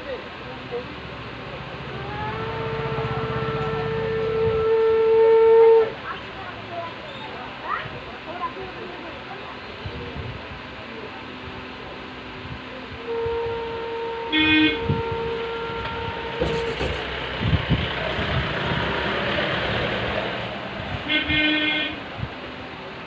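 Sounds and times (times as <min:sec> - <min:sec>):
street traffic: 0:00.0 - 0:23.0
vehicle horn tooting: 0:02.3 - 0:06.0, 0:13.0 - 0:17.1, 0:21.0 - 0:22.0.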